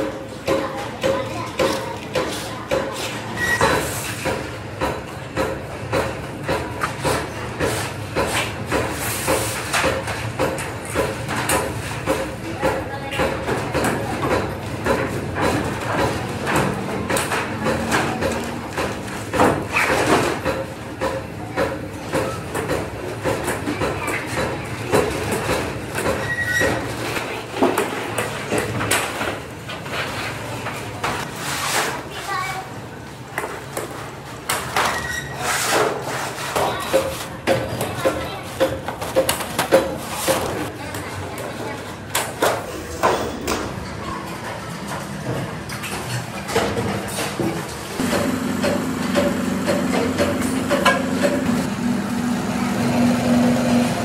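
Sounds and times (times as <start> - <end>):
hand tools knocking sheet metal: 48.0 - 51.7.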